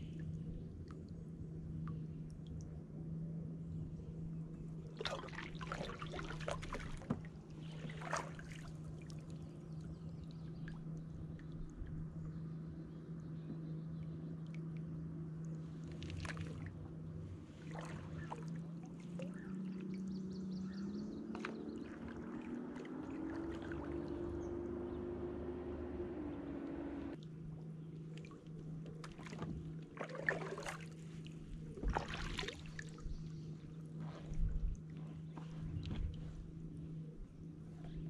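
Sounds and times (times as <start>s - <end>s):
steady low hum: 0.0s - 38.0s
paddle splashing in water: 4.9s - 9.4s, 15.9s - 16.8s, 17.4s - 20.0s, 21.1s - 25.3s, 28.1s - 33.2s.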